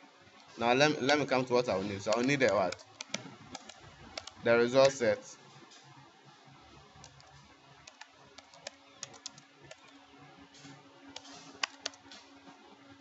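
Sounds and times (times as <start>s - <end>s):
typing on keyboard: 1.0s - 5.0s, 7.0s - 10.0s, 11.1s - 12.2s.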